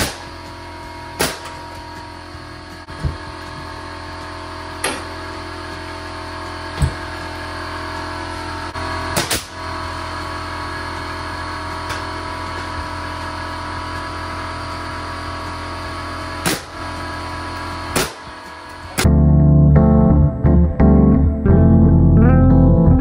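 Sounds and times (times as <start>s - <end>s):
nail gun shots: 0.0s - 0.3s, 1.2s - 1.6s, 9.1s - 9.6s, 16.4s - 16.8s, 17.9s - 18.3s
guitar music: 19.1s - 23.0s.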